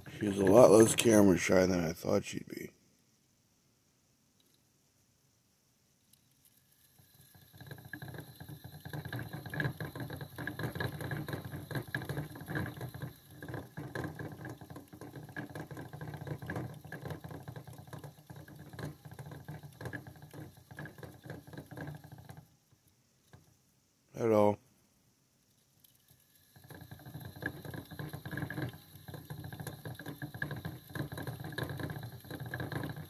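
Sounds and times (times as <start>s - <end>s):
hamster wheel rattling: 0.0s - 1.2s, 6.5s - 22.6s, 26.0s - 33.0s.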